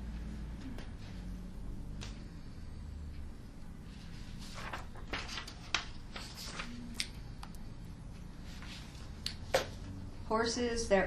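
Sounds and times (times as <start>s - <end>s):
low room hum: 0.0s - 11.0s
paper rustling and shuffling: 3.9s - 7.2s, 8.4s - 9.9s.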